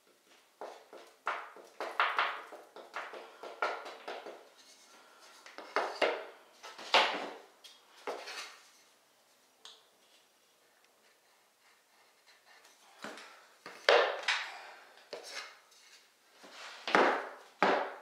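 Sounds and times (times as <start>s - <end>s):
wooden knocks and scrapes: 8.0s - 8.7s.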